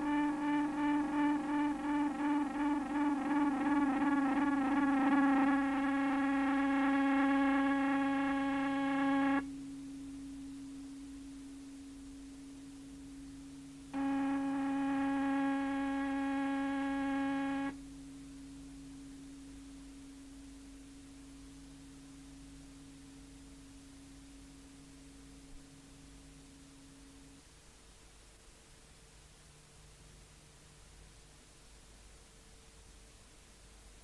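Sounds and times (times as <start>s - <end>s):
faint hum: 0.0s - 9.5s, 10.9s - 17.8s.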